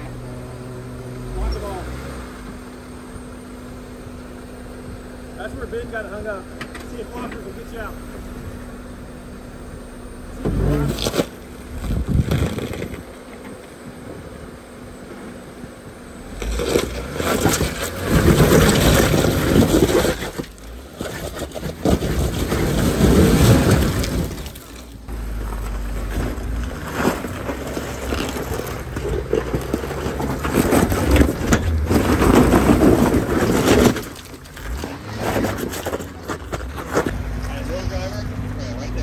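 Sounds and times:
off-road vehicle engine surging: 0:00.0 - 0:39.0
tyres crunching over rock: 0:16.3 - 0:37.2.

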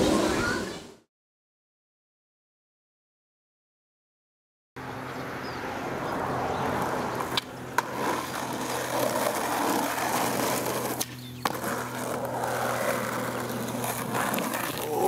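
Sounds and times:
skateboard rolling on asphalt: 0:04.8 - 0:15.0
skateboard clacks: 0:06.8 - 0:15.0.

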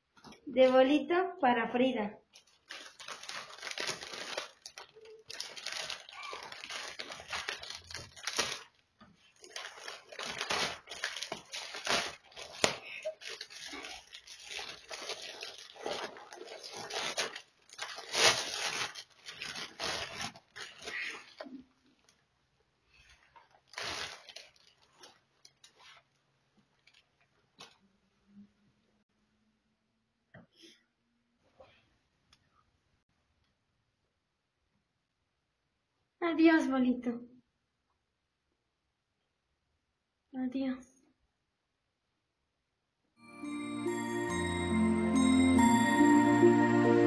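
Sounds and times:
cellophane crinkling and tearing: 0:02.3 - 0:22.2, 0:23.0 - 0:27.8.

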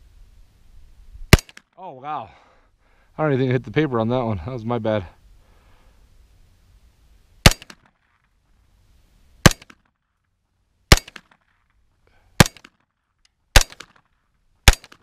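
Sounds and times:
pistol shots: 0:01.3 - 0:01.6, 0:07.4 - 0:07.9, 0:09.4 - 0:09.8, 0:10.9 - 0:11.4, 0:12.4 - 0:12.7, 0:13.5 - 0:14.0, 0:14.6 - 0:15.0.

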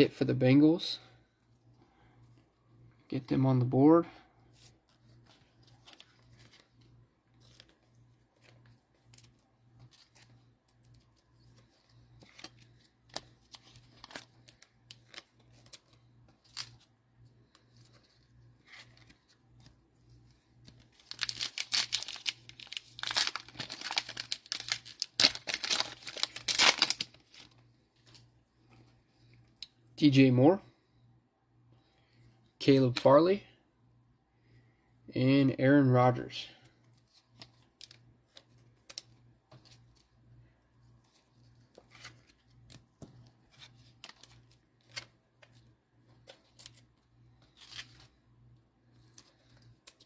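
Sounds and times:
plastic wrapper tearing and crinkling: 0:20.8 - 0:27.6.

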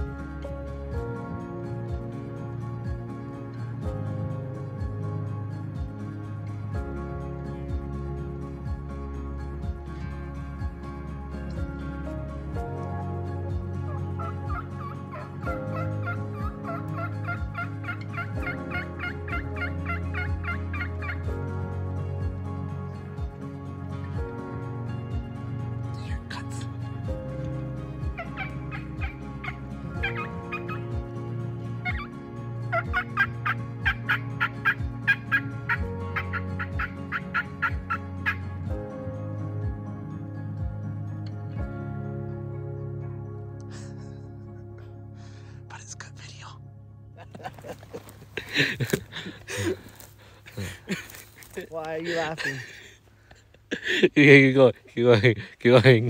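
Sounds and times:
soft background music: 0:00.0 - 0:56.0
turkey call yelps: 0:13.9 - 0:21.3, 0:28.1 - 0:30.9, 0:31.8 - 0:32.1, 0:32.7 - 0:38.4
person making turkey calls: 0:14.2 - 0:21.2.

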